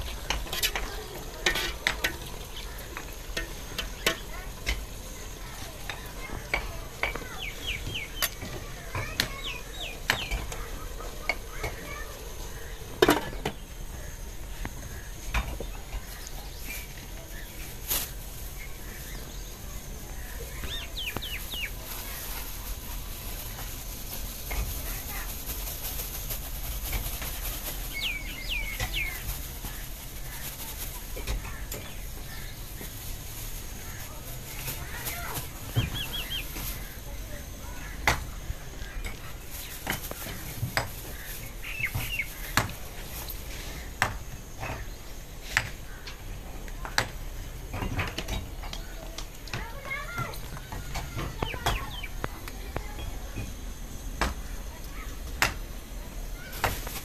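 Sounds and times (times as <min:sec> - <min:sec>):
bird chirps: 0:07.0 - 0:12.7, 0:18.5 - 0:22.5, 0:27.7 - 0:29.8, 0:34.6 - 0:37.1, 0:41.0 - 0:42.6, 0:51.0 - 0:54.7.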